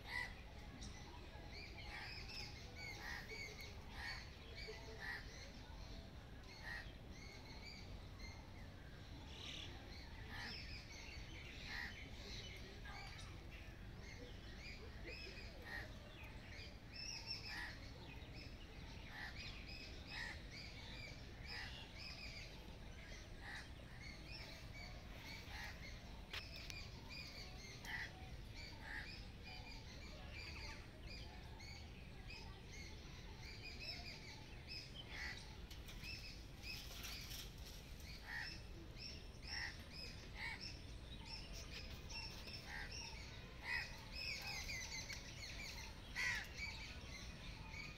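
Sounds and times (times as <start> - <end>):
birds chirping: 0.0 - 47.9.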